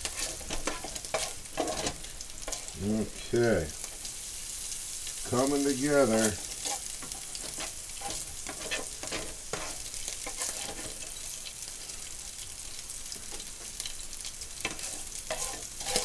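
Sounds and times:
spatula scraping a pan: 0.0s - 2.8s, 5.1s - 12.4s, 14.6s - 16.0s
meat sizzling in a frying pan: 0.0s - 16.0s.

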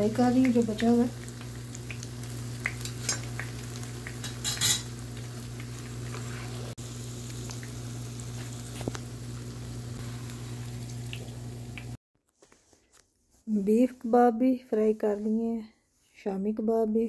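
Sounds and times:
egg sizzling in oil: 0.0s - 12.0s.

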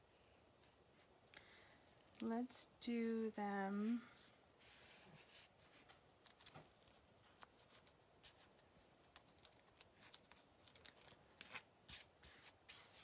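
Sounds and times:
plastic stencil rustling: 3.9s - 13.0s.

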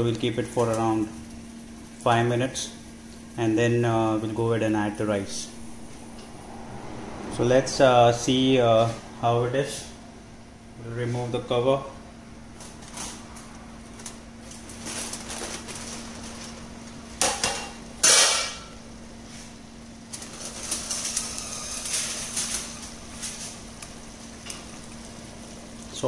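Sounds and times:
aluminium foil crinkling: 13.8s - 17.0s, 20.1s - 25.9s.

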